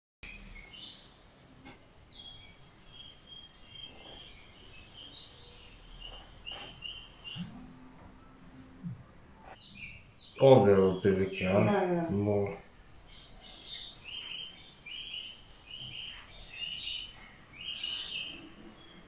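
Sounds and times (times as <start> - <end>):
birds chirping: 0.2 - 19.0
low hum: 7.4 - 9.6.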